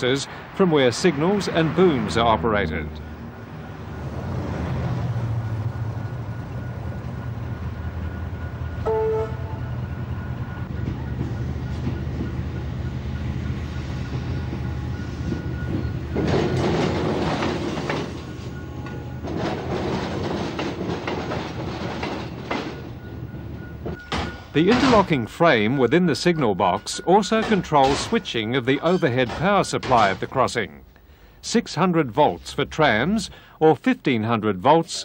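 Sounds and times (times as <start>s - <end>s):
rail vehicle rumbling: 0.0s - 35.0s
brief tone: 5.7s - 11.2s
wheels clattering over rails: 10.6s - 30.8s.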